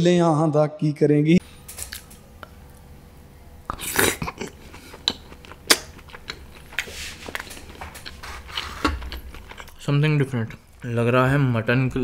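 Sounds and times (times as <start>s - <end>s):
wet chewing and slurping: 3.6s - 11.4s.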